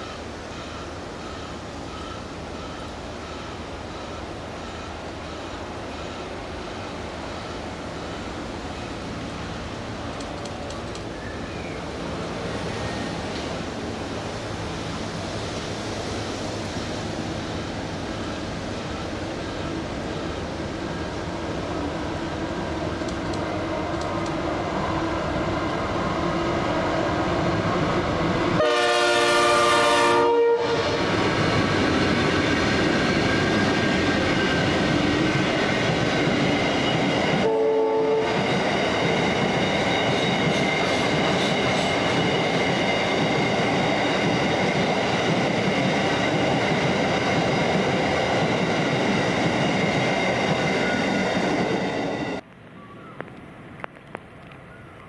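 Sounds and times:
train horn: 28.6 - 31.1, 37.4 - 38.4.

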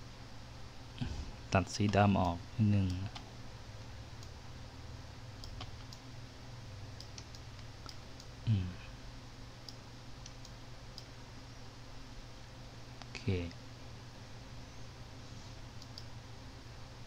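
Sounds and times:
low steady hum: 0.0 - 17.0
computer mouse clicks: 5.4 - 6.0, 7.0 - 8.3, 15.8 - 16.1
short vocal sound: 8.5 - 8.9.

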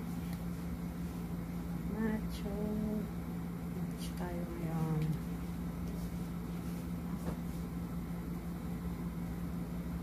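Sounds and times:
low machine hum: 0.0 - 10.0.

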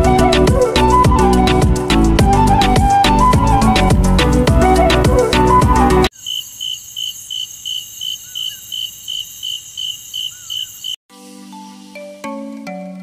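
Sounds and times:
crickets chirping: 6.1 - 11.0
high insect trill: 6.1 - 11.0.

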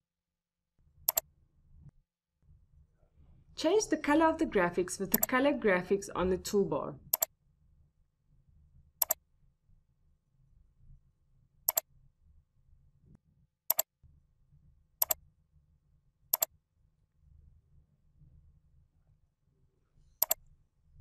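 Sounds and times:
computer mouse clicking: 1.1 - 1.3, 5.1 - 5.3, 7.1 - 7.3, 9.0 - 9.2, 11.7 - 11.9, 16.3 - 16.5, 20.2 - 20.4.

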